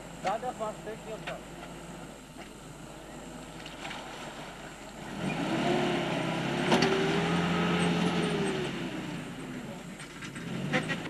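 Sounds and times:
water churned by wheels: 0:00.0 - 0:11.0
truck engine pulling hard: 0:05.0 - 0:11.0.

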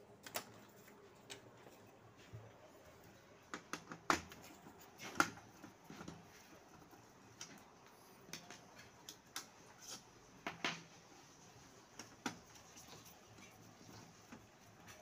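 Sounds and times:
plastic parts clicking and knocking: 0:03.5 - 0:06.2.

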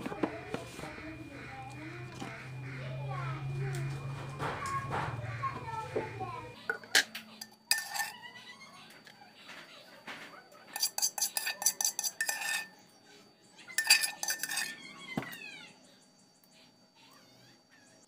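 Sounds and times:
metal spoon scraping dishes: 0:06.6 - 0:08.2, 0:10.7 - 0:12.8, 0:13.7 - 0:15.3.

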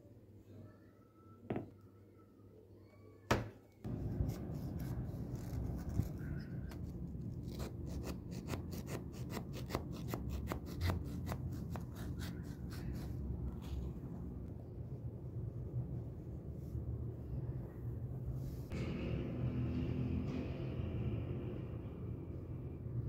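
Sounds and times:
steady low rumble: 0:03.9 - 0:07.9
knife cutting crisp pie crust: 0:03.9 - 0:13.2.

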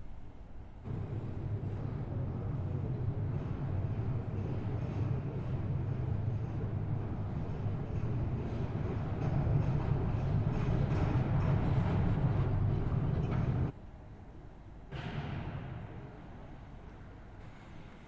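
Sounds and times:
steady low rumble: 0:00.0 - 0:13.8.

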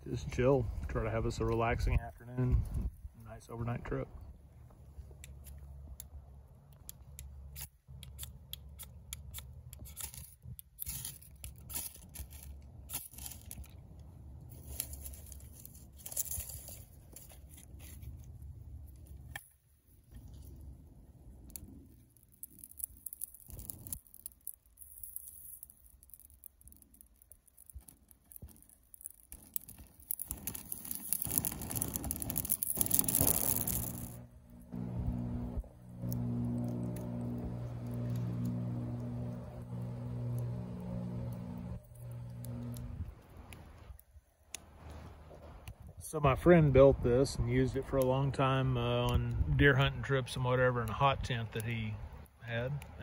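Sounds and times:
wind rumbling on microphone: 0:00.0 - 0:04.5
pine needles crackling in fire: 0:00.0 - 0:53.0.

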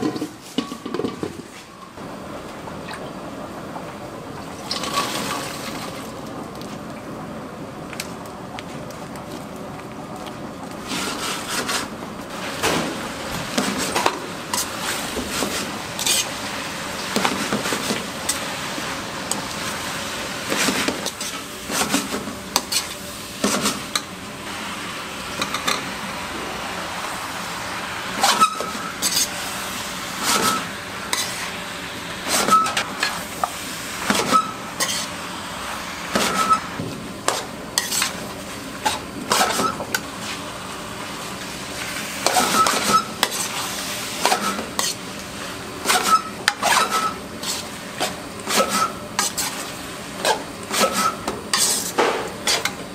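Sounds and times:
metal spatula scraping pan: 0:28.2 - 0:29.4, 0:34.1 - 0:35.1, 0:37.8 - 0:38.2, 0:44.2 - 0:45.0, 0:48.5 - 0:52.8.

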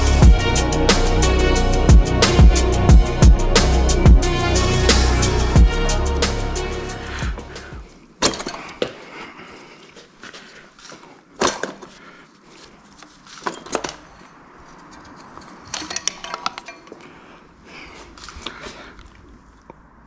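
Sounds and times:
metal engine parts clinking: 0:08.2 - 0:08.8, 0:13.2 - 0:17.1.

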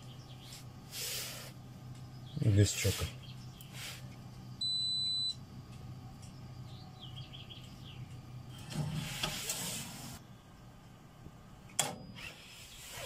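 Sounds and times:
cash machine hum: 0:00.3 - 0:13.0
cash machine beep: 0:04.6 - 0:05.4
cash machine whirring: 0:08.3 - 0:10.3.

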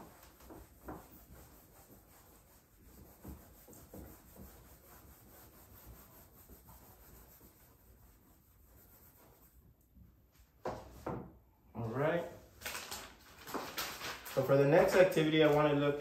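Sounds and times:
eraser rubbing on whiteboard: 0:00.0 - 0:09.6.

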